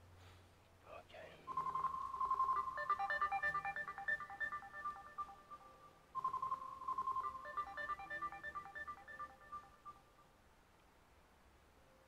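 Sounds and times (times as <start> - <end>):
electronic phone ringtone: 1.5 - 10.1.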